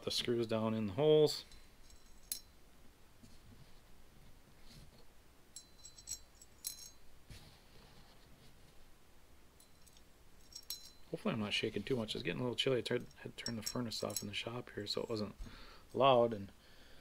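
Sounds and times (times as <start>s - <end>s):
metal screws clinking: 1.5s - 2.6s, 5.6s - 7.1s, 9.6s - 11.2s, 12.9s - 15.3s.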